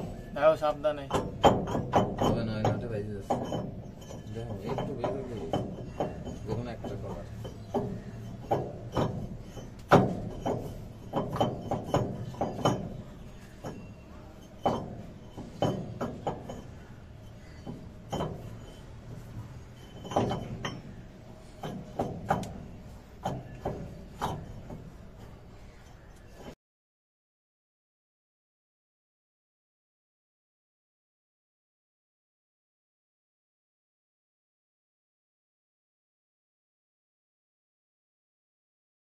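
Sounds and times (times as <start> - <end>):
metal parts clinking and knocking: 0.1 - 26.6.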